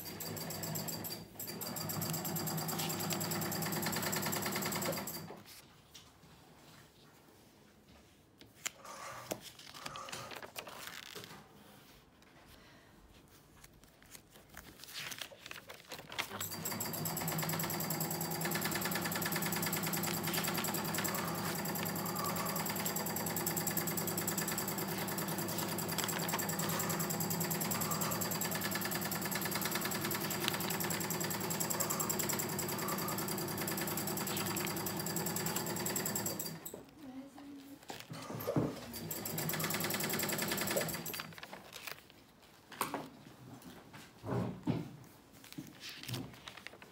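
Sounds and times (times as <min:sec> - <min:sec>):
sewing machine stitching: 0:00.0 - 0:05.4, 0:16.2 - 0:36.8, 0:38.1 - 0:41.4.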